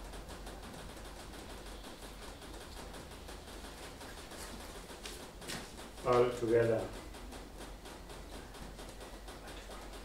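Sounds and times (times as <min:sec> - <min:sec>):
low room hum: 0:00.0 - 0:10.0
marker writing on whiteboard: 0:00.6 - 0:10.0.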